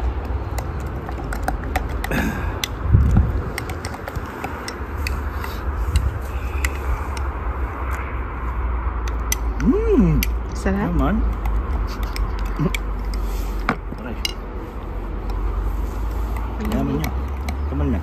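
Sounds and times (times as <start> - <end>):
low rumble: 2.2 - 10.6.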